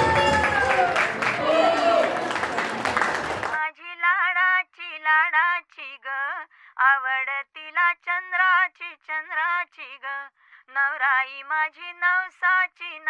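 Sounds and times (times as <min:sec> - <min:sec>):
crowd noise: 0:00.0 - 0:03.6.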